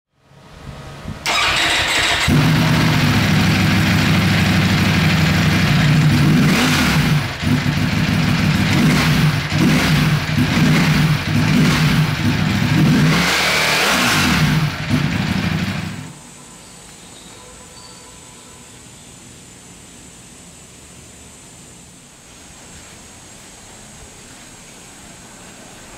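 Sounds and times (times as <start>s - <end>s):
motorcycle starter cranking: 1.2s - 4.3s
motorcycle engine idling and revving: 1.2s - 16.2s.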